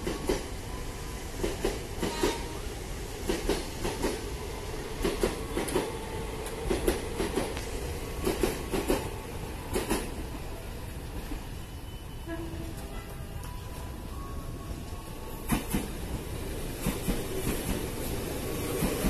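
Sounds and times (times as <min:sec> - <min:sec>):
train rumble: 0:00.0 - 0:19.0
train wheels clicking over rail joints: 0:03.2 - 0:04.2, 0:05.0 - 0:09.1, 0:15.5 - 0:16.0, 0:16.8 - 0:18.0, 0:18.6 - 0:19.0.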